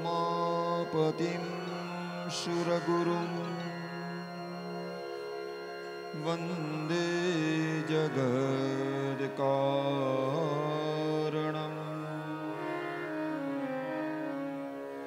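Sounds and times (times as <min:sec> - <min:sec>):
man chanting: 0:00.0 - 0:04.6, 0:06.1 - 0:13.2
sustained drone: 0:00.0 - 0:12.9.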